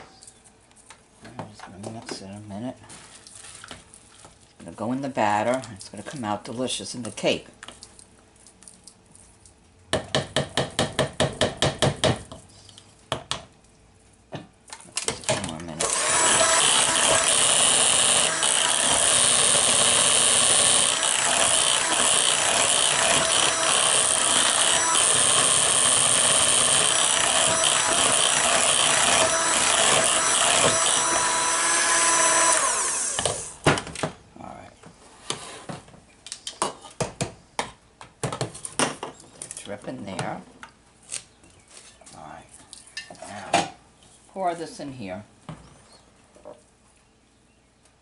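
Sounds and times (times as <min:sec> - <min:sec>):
electric hand mixer whirring: 0:15.8 - 0:33.6.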